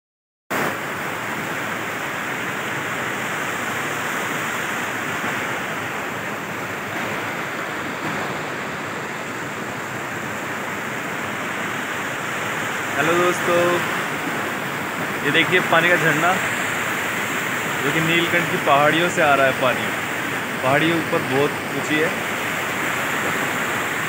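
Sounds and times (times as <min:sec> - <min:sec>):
stream rushing over rocks: 0:00.5 - 0:24.0.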